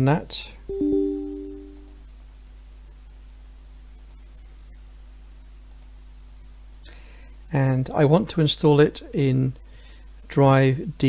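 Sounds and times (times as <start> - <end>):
low steady hum: 0.6 - 3.3
short two-note tone: 0.7 - 1.9
computer mouse clicks: 4.0 - 4.3, 5.7 - 6.0.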